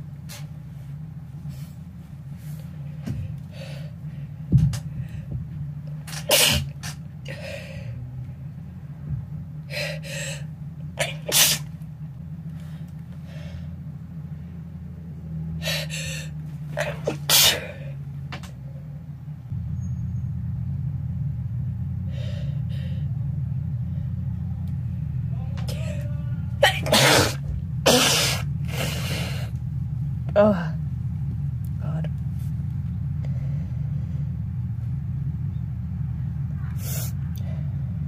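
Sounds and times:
steady low hum: 0.0 - 38.0
quick breaths: 1.4 - 5.5, 6.6 - 8.0, 9.7 - 10.5, 15.6 - 18.0, 28.0 - 29.6
person sneezing: 6.2 - 6.8, 11.0 - 11.7, 16.8 - 18.0, 26.6 - 29.4.

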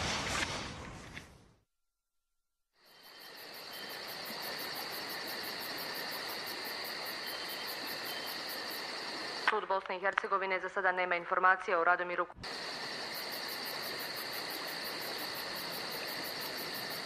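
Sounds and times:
crickets chirring: 2.8 - 10.4, 12.4 - 17.0.

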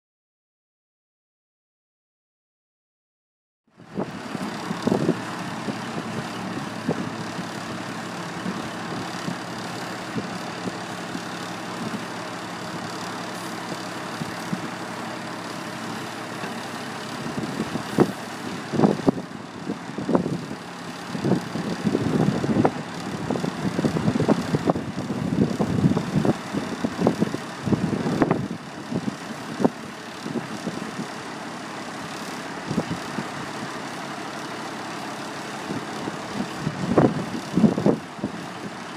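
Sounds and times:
diesel engine idling: 3.8 - 38.9
engine bursts: 3.8 - 38.9.

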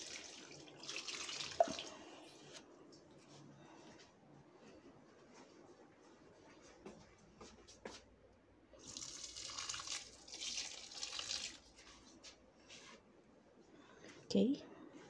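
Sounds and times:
water pouring onto soil: 8.8 - 11.8.

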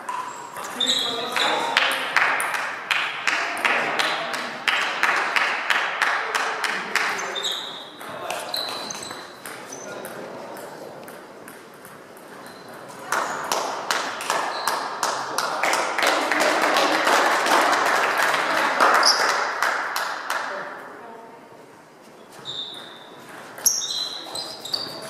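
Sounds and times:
spectators clapping and cheering: 1.6 - 7.2, 13.1 - 20.7.

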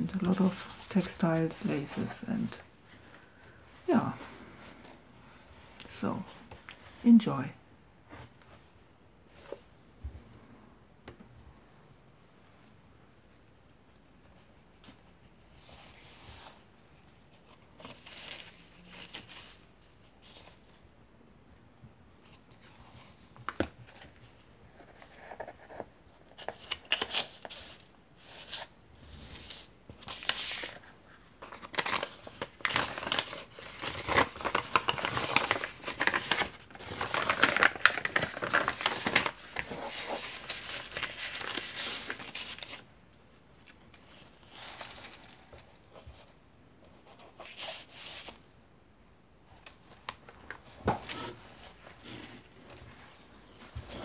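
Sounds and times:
paper pages rustling: 0.0 - 3.2, 17.3 - 20.8, 22.2 - 42.9, 43.5 - 48.4.

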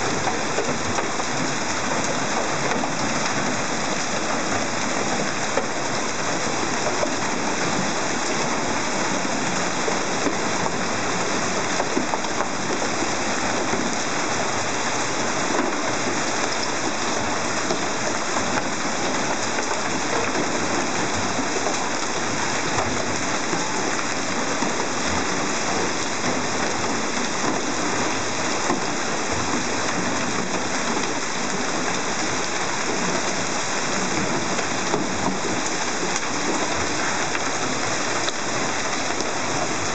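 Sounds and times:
hail and rain on street: 0.0 - 39.9.

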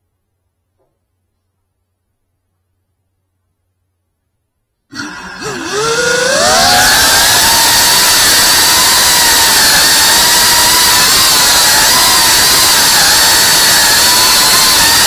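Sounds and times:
drone motors whining: 5.0 - 15.0.

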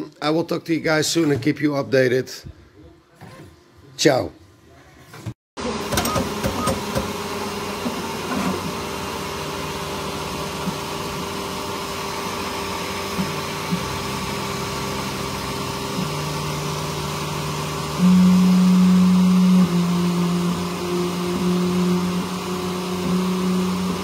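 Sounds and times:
stepper motor tones: 5.6 - 24.0.

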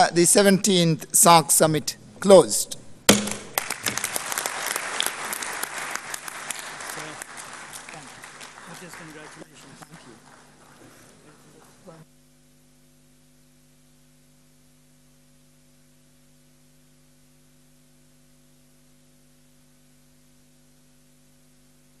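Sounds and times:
faint electrical hum: 0.0 - 22.0.

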